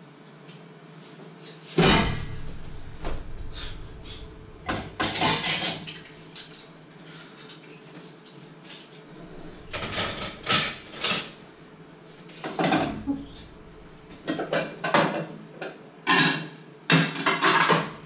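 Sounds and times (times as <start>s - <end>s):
dishes and pots clattering: 1.8s - 6.7s, 9.2s - 11.4s, 12.4s - 15.3s, 16.1s - 18.0s.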